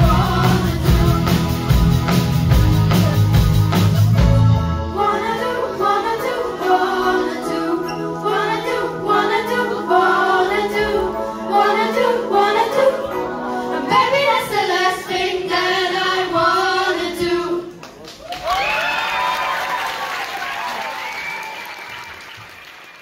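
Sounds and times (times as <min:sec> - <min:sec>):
rock band playing: 0:00.0 - 0:05.1
girls singing together: 0:05.0 - 0:17.8.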